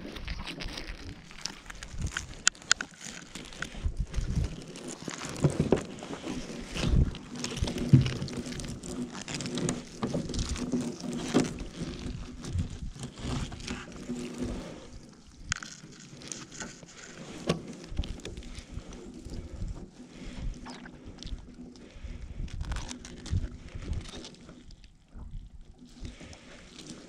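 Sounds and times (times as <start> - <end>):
net mesh rustling: 0.0 - 20.0.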